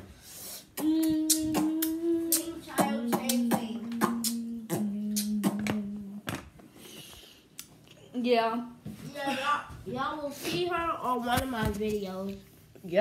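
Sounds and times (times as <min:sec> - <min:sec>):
person singing long held notes: 0:00.8 - 0:06.3.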